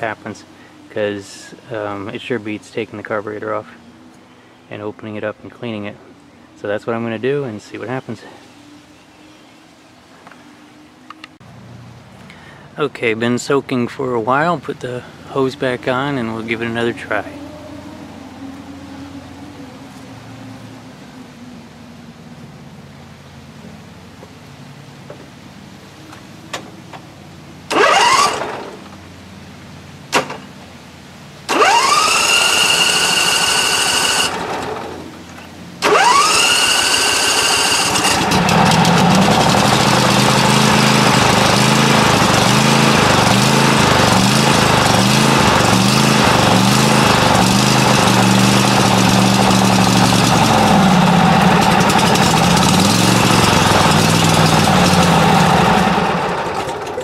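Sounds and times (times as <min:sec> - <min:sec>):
electric starter whine: 0:27.6 - 0:29.1, 0:31.5 - 0:57.0
mower engine running rough: 0:27.7 - 0:29.0, 0:31.5 - 0:57.0.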